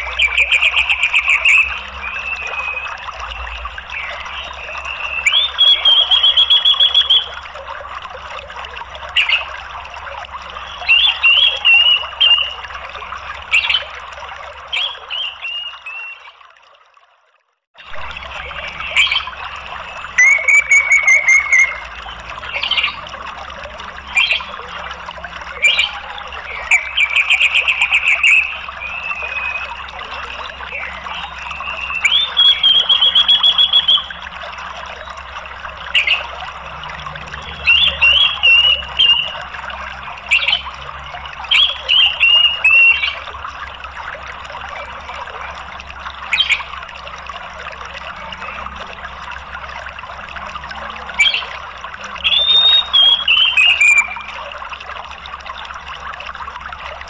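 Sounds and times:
flowing water: 0.0s - 57.0s
sharp bird call notes: 20.2s - 21.8s.

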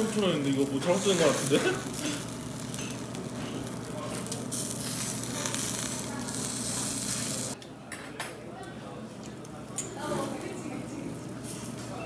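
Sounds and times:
meat skewers sizzling on grill: 0.0s - 7.6s.

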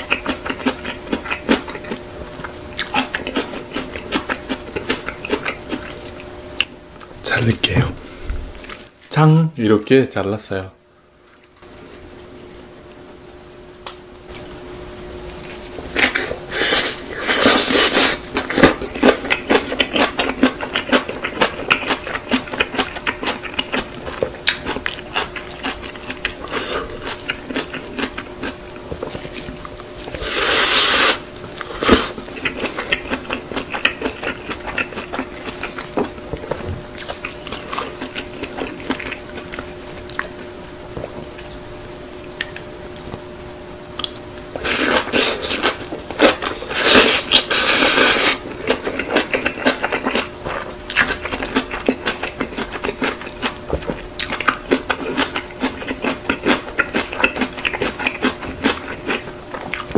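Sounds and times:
wet chewing and mouth smacking: 0.0s - 7.1s, 15.3s - 40.4s, 42.2s - 43.0s, 43.9s - 59.9s
faint steady hum: 0.0s - 59.9s
noodles slurped: 15.5s - 24.0s, 24.6s - 35.8s, 44.6s - 59.9s.

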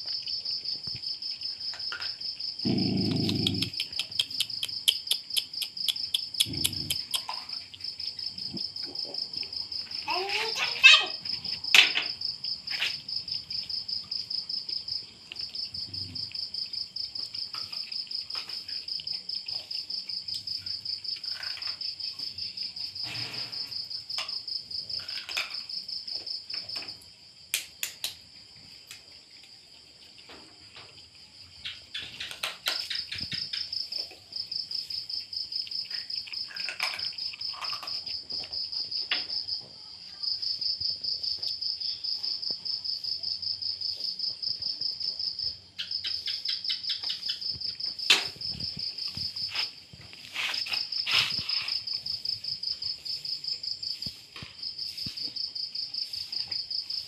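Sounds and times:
cricket trilling: 0.0s - 57.0s
dog eating off a plate: 31.8s - 39.3s.

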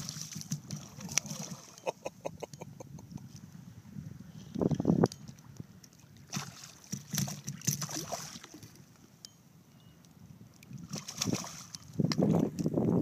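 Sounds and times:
fish splashing in water: 6.3s - 8.8s, 10.8s - 11.8s.

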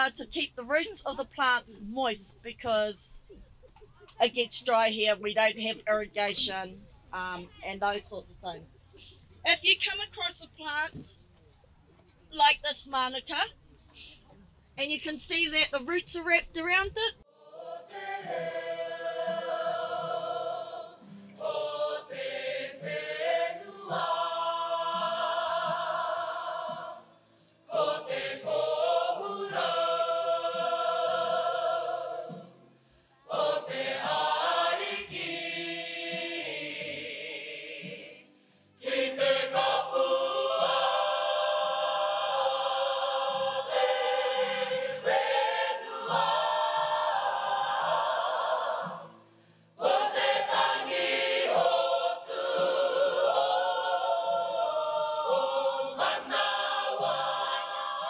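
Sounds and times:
group of voices singing harmony: 17.3s - 32.6s, 33.2s - 58.0s.

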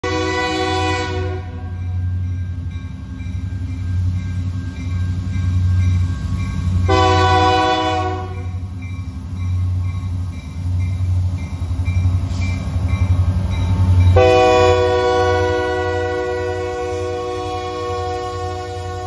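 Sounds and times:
locomotive air horn blasts: 0.0s - 1.7s, 6.9s - 8.5s, 14.1s - 19.0s.

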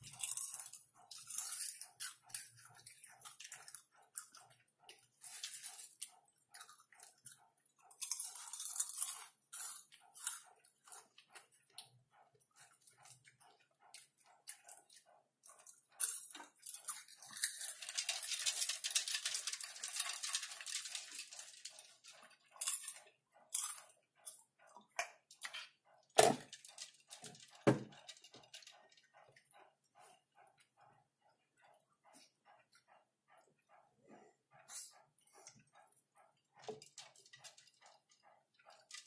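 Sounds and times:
popcorn rustling: 0.0s - 4.3s, 7.9s - 10.4s, 15.7s - 23.8s
popcorn chewing crunches: 0.0s - 29.4s.

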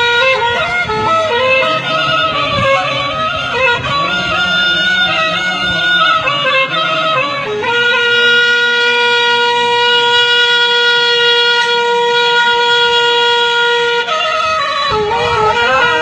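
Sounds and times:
man chanting: 0.2s - 9.3s, 14.9s - 16.0s.

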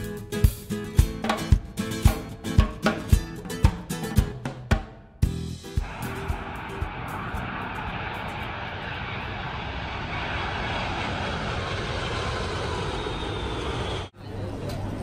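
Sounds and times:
jet engine roar: 5.8s - 14.2s.

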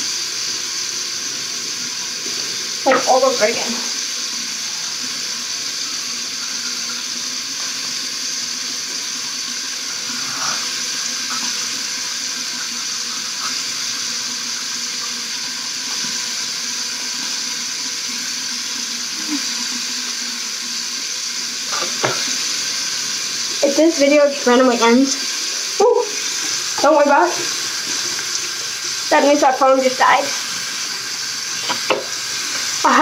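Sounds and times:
tap running into sink: 2.3s - 3.7s, 21.6s - 23.7s, 26.2s - 28.7s, 30.8s - 32.8s.

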